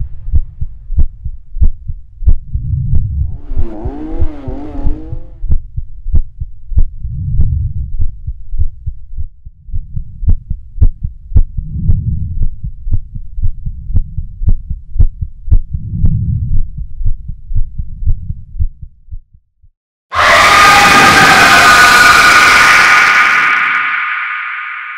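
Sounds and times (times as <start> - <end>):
low rumbling drone: 0.0 - 14.9, 20.1 - 24.9.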